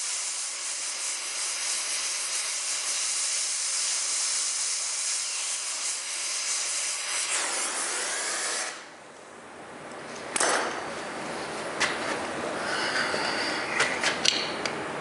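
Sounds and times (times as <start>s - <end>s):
propane torch hissing: 0.0s - 8.9s.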